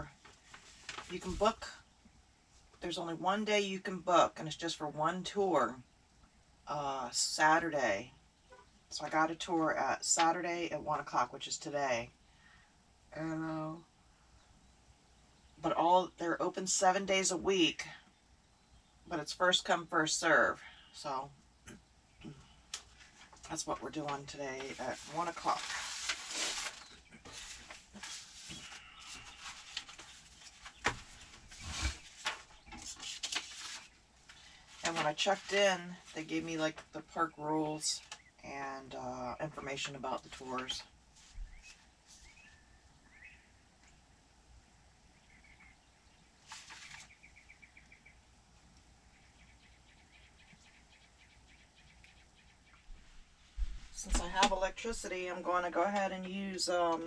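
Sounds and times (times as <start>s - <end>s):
paper rustling and shuffling: 0.1s - 1.6s, 22.8s - 36.9s, 39.7s - 42.4s, 46.4s - 47.2s
faint bird chirps: 41.4s - 43.6s, 45.1s - 48.2s
brief rustle: 46.4s - 47.2s.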